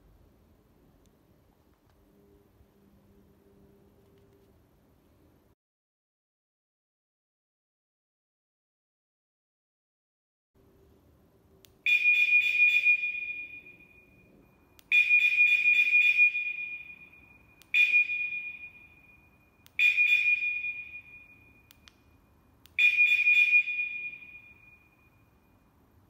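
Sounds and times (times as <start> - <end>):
motorcycle alarm beeps: 11.9 - 21.8, 22.7 - 25.7.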